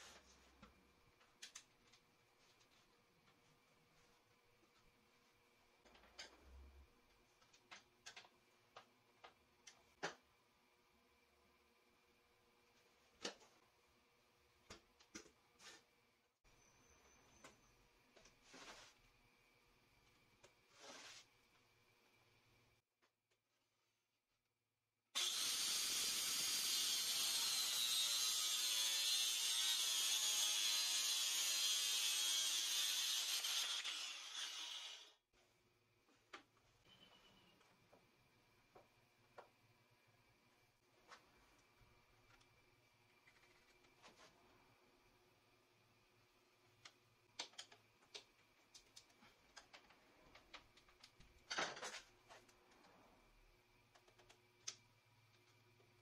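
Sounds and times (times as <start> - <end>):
handling scrape: 20.7 - 21.3
angle grinder cutting plywood: 25.2 - 35.2.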